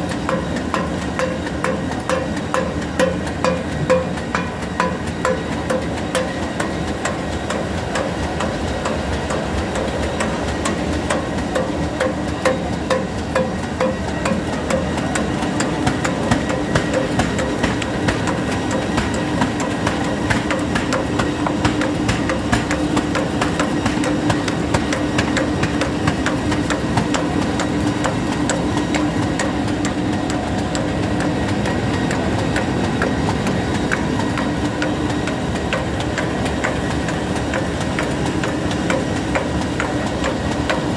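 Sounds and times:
machine mechanical hum: 0.0 - 40.9
regular mechanical knock: 0.0 - 40.9.

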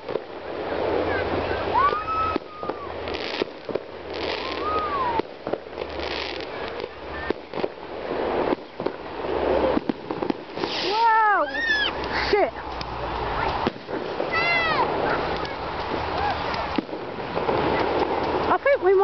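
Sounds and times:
firework hissing bursts: 0.0 - 19.0
fireworks cracking and popping: 0.0 - 19.0.

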